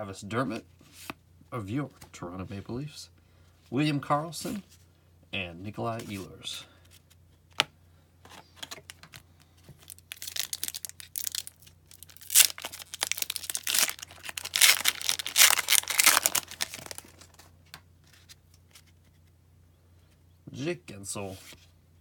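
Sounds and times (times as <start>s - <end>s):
foil wrapper crinkling and tearing: 9.8s - 17.5s.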